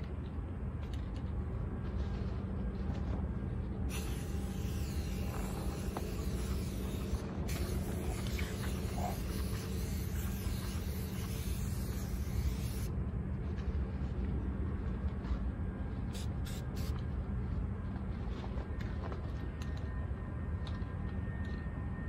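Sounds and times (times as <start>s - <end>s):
steady low rumble: 0.0s - 22.0s
spray paint can hissing: 3.9s - 12.9s, 16.2s - 16.9s.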